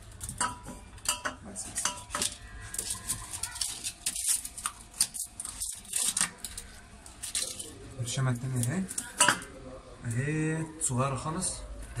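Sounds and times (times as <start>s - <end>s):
blister pack crackling: 2.2s - 9.2s.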